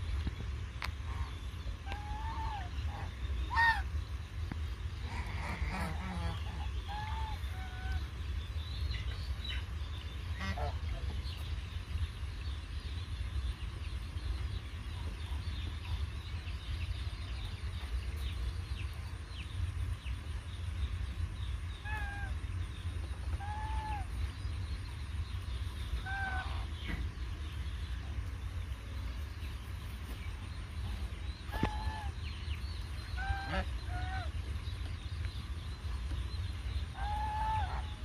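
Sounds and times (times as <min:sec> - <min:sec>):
steady low rumble: 0:00.0 - 0:38.0
geese honking: 0:01.0 - 0:04.1, 0:04.9 - 0:08.2, 0:10.3 - 0:11.2, 0:23.2 - 0:24.3, 0:25.8 - 0:27.2, 0:31.1 - 0:34.6, 0:36.8 - 0:38.0.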